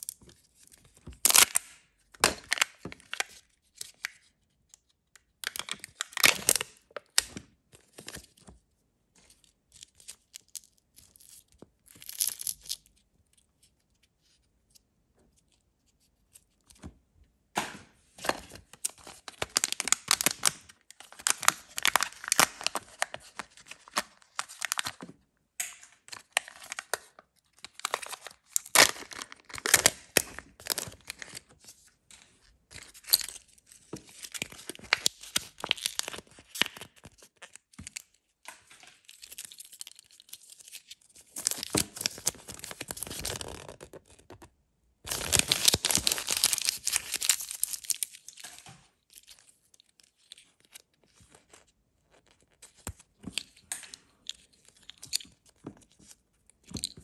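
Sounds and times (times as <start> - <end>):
plastic wrapping crinkling and tearing: 1.2 - 4.3, 5.4 - 8.4, 18.2 - 25.0, 26.0 - 31.6, 32.7 - 44.4, 45.1 - 53.6.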